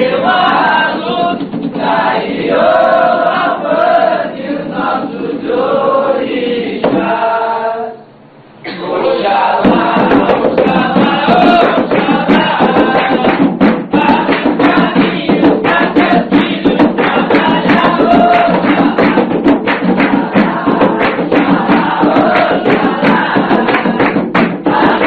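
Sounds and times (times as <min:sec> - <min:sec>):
fast drum beats: 0:00.0 - 0:03.3, 0:09.5 - 0:25.0
voices singing: 0:00.0 - 0:25.0.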